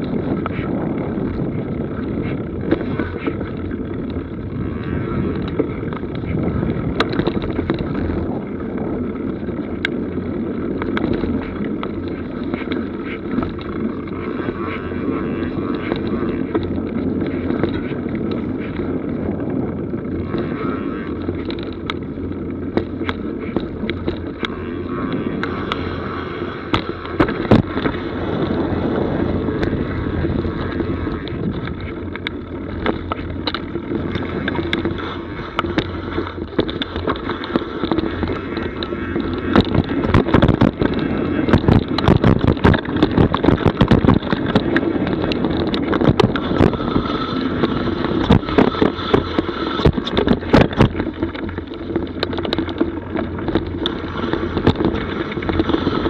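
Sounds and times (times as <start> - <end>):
bike tyres rumbling on dirt: 0.0 - 56.0
wind on microphone: 0.0 - 56.0.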